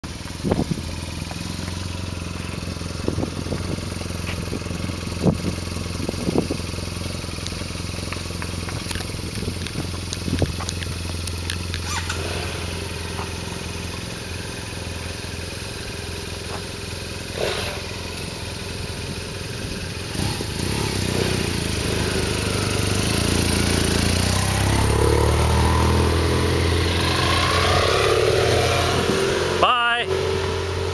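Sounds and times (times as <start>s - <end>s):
motorcycle engines idling: 0.0s - 28.8s
motorcycle pulling away: 0.1s - 30.9s
sharp clicks: 7.4s - 12.2s.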